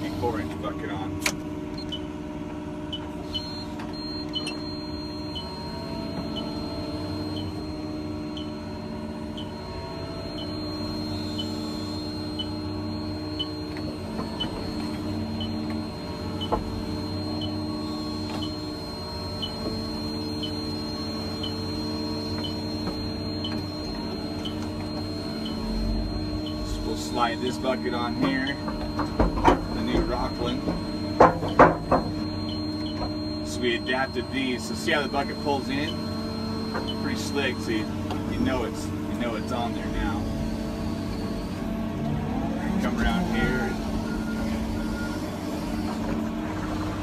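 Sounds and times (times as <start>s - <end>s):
excavator diesel engine: 0.0s - 47.0s
short high beeps: 2.9s - 8.7s, 9.3s - 41.6s, 42.8s - 45.9s
faint high whine: 2.9s - 47.0s
machine knock: 28.6s - 32.2s.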